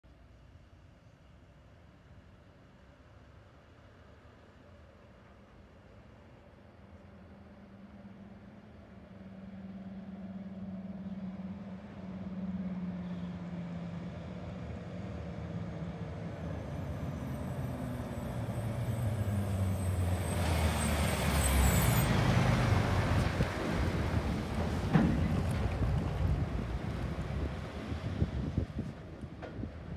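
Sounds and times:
truck diesel engine passing: 7.5 - 29.9.

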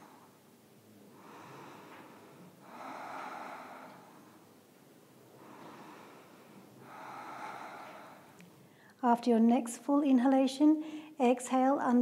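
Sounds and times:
woman breathing deeply: 0.0 - 9.0.

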